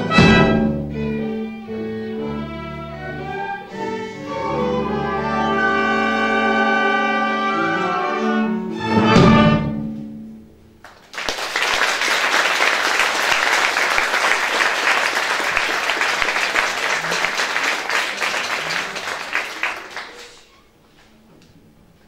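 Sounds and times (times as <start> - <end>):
orchestra with strings: 0.0 - 10.4
audience applause: 10.8 - 20.5.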